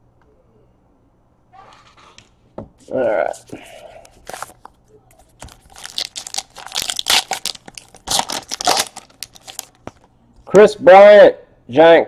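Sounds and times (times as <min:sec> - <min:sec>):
foil wrapper tearing and crinkling: 0:05.3 - 0:10.1.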